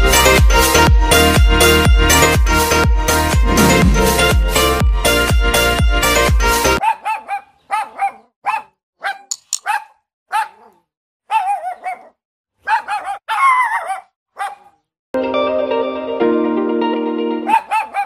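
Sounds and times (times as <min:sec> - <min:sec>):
dog barking: 0:06.8 - 0:14.9, 0:17.4 - 0:18.0.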